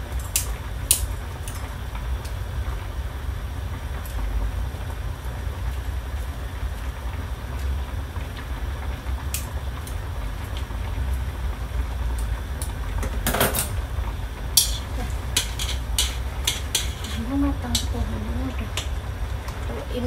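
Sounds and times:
low hum: 0:00.0 - 0:20.0
chopsticks clinking in wok: 0:14.6 - 0:18.0.

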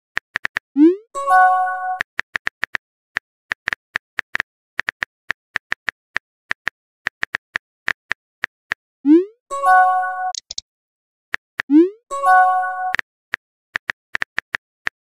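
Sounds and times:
message sent chime: 0:09.5 - 0:10.6, 0:12.1 - 0:13.0
phone keyboard clicks: 0:10.3 - 0:10.6.

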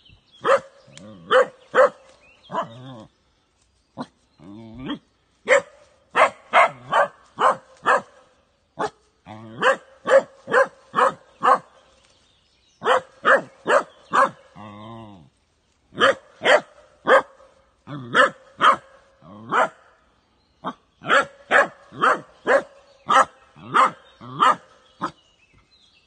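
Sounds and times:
dog barking: 0:00.4 - 0:02.8, 0:04.8 - 0:08.2, 0:08.8 - 0:09.0, 0:09.6 - 0:11.8, 0:12.8 - 0:14.4, 0:16.0 - 0:19.8, 0:20.6 - 0:25.2.

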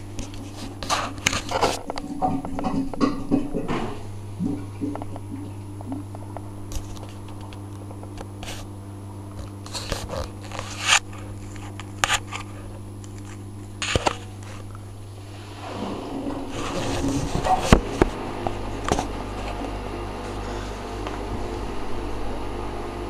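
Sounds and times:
washing machine humming: 0:00.0 - 0:23.0
short crackling noises: 0:00.2 - 0:14.9.

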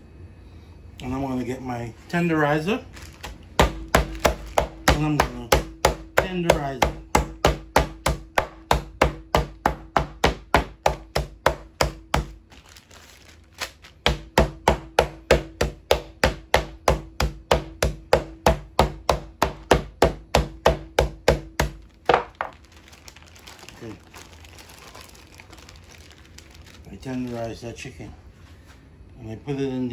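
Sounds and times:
mallet pounding meat in bag: 0:03.2 - 0:12.8, 0:13.7 - 0:23.6.

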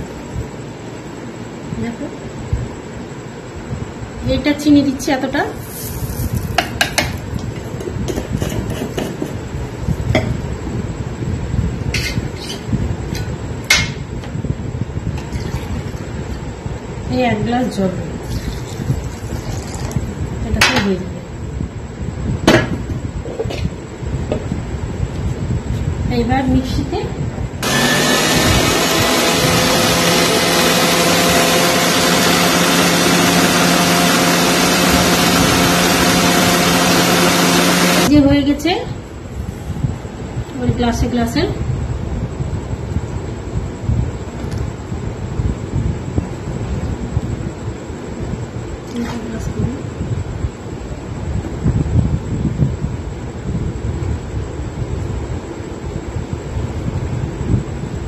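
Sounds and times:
mixer grinder whirring: 0:27.6 - 0:38.1.

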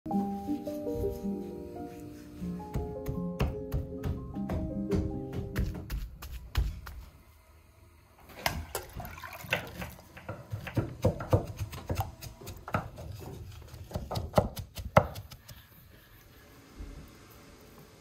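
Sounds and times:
liquid pouring into steel bowl: 0:08.3 - 0:10.2.

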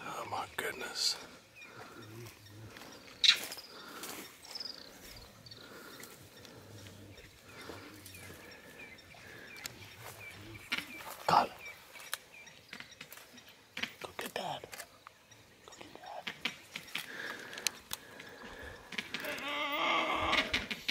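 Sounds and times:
wild dogs chirping twitters: 0:01.5 - 0:14.0
animal crying out loudly: 0:19.2 - 0:20.6.

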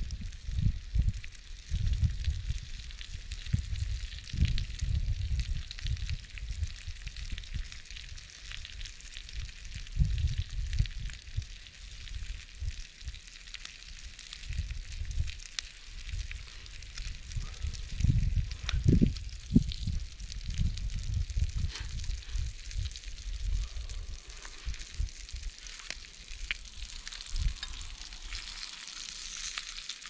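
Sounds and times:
food sizzling in frying pan: 0:00.0 - 0:30.0
low rumbles: 0:15.9 - 0:29.6.

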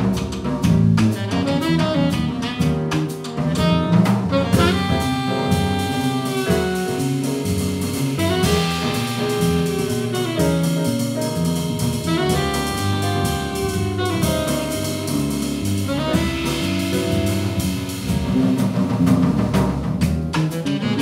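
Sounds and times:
drum kit with cymbal strokes: 0:00.0 - 0:21.0
saxophone melody: 0:01.2 - 0:18.1, 0:20.5 - 0:21.0
walking electric bass line: 0:03.6 - 0:20.3.

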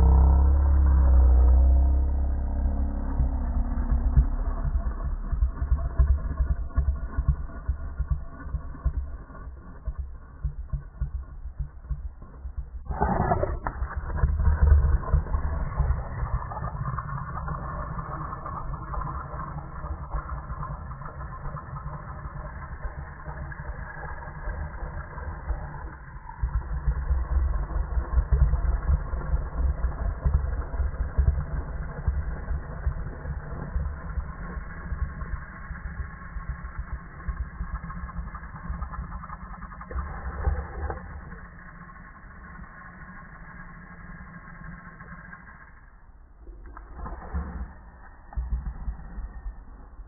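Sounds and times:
slowed dog growling: 0:00.0 - 0:08.8, 0:12.9 - 0:13.9, 0:39.0 - 0:42.0, 0:46.4 - 0:49.8.

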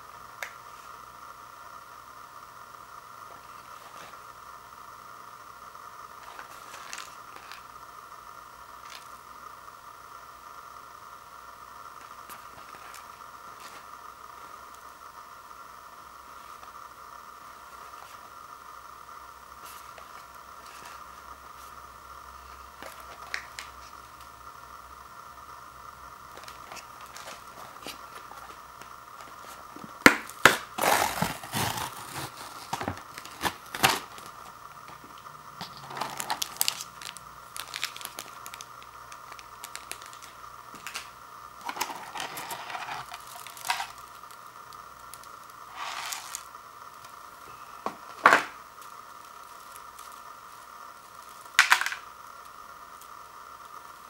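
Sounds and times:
packaging crinkling and rustling: 0:26.3 - 0:44.4, 0:45.0 - 0:46.5
paper lid tearing off: 0:30.5 - 0:34.3.

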